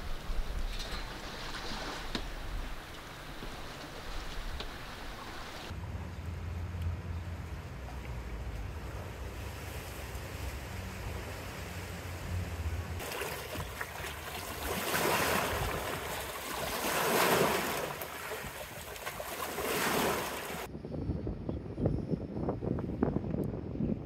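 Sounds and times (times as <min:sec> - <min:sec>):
small waves breaking on shore: 0:00.0 - 0:05.8, 0:07.8 - 0:20.7
wind rumbling on microphone: 0:00.0 - 0:24.0.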